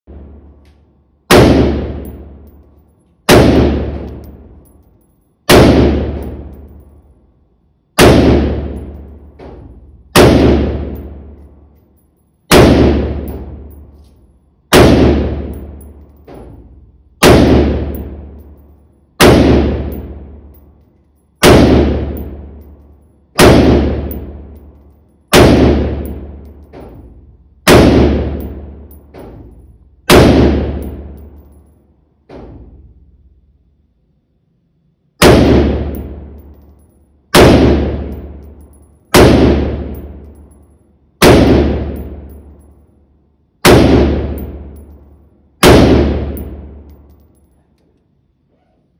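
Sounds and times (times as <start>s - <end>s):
rifle shots with echo: 1.3s - 2.5s, 3.3s - 4.6s, 5.5s - 6.8s, 8.0s - 11.7s, 12.5s - 13.8s, 14.7s - 16.6s, 17.2s - 18.6s, 19.2s - 20.6s, 21.4s - 22.8s, 23.4s - 24.7s, 25.3s - 26.9s, 27.6s - 29.5s, 30.1s - 31.3s, 35.2s - 36.5s, 37.3s - 40.5s, 41.2s - 42.6s, 43.6s - 45.0s, 45.6s - 47.2s.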